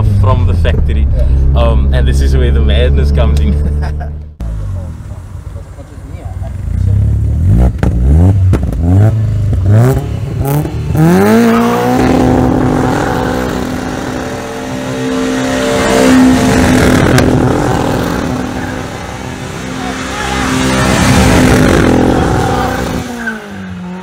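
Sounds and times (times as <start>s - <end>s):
car engine revving: 0.0s - 24.0s
tyres squealing in a burnout: 17.4s - 24.0s.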